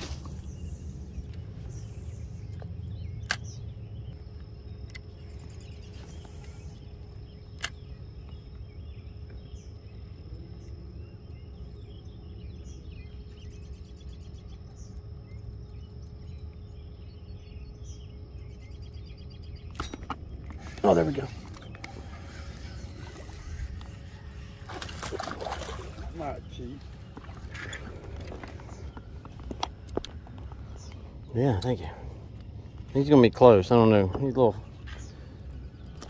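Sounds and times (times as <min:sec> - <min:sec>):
faint bird chirps: 0:00.0 - 0:36.0
low rumble and hiss: 0:00.0 - 0:36.0
sharp clicks: 0:02.5 - 0:03.6, 0:07.5 - 0:07.9.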